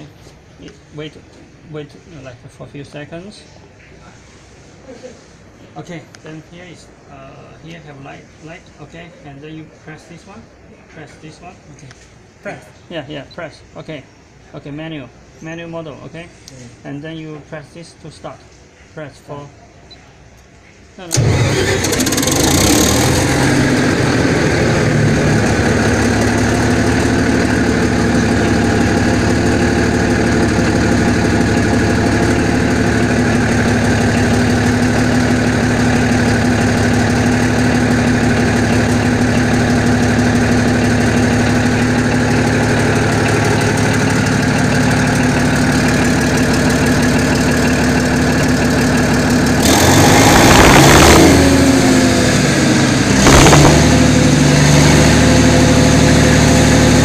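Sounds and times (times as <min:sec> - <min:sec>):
diesel generator idling: 0:21.1 - 0:57.0.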